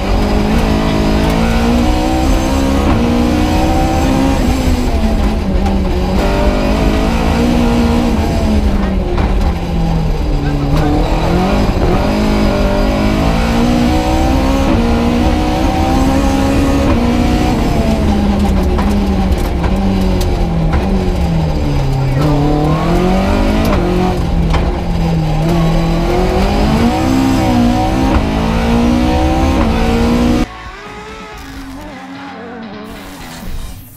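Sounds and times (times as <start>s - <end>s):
car engine revving from inside cabin: 0.0s - 5.3s, 5.9s - 8.9s, 10.6s - 19.2s, 22.1s - 30.5s.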